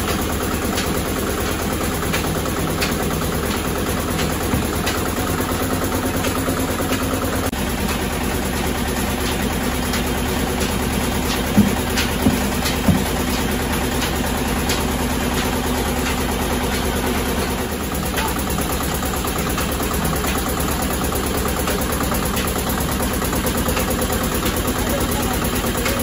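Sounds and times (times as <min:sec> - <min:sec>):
oil press machine hum: 0:00.0 - 0:26.0
sharp knocks: 0:10.6 - 0:16.8.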